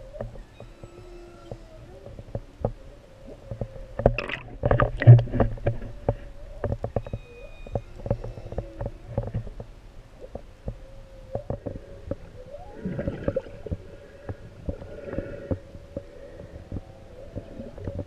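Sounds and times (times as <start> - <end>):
whale song underwater: 0.0 - 5.1, 5.9 - 18.0
high squeaky whale calls: 0.4 - 2.2, 6.9 - 9.4.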